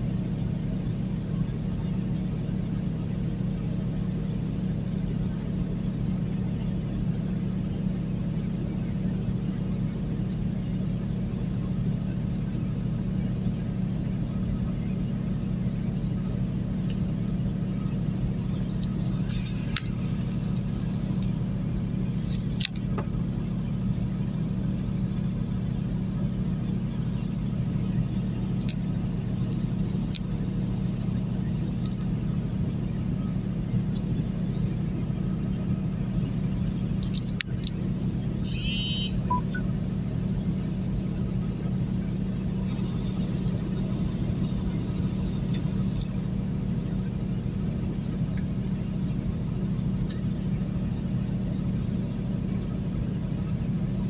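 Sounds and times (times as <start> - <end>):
engine drone: 0.0 - 54.0
tyre and road noise: 16.9 - 23.7.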